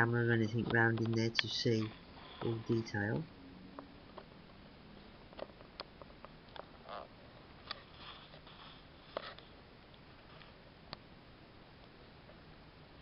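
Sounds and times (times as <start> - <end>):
soft rustles: 6.7 - 9.6.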